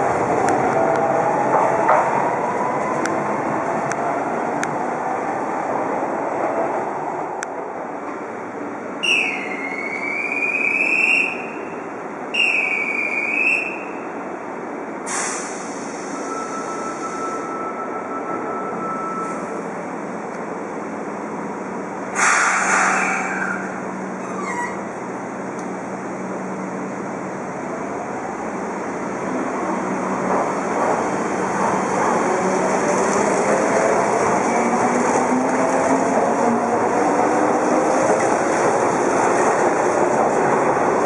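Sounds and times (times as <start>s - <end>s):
subway train running over track: 0.0s - 41.0s
train wheels squealing: 9.0s - 11.5s, 16.0s - 19.6s, 22.3s - 24.8s
short hiss: 15.1s - 16.0s, 22.2s - 23.2s.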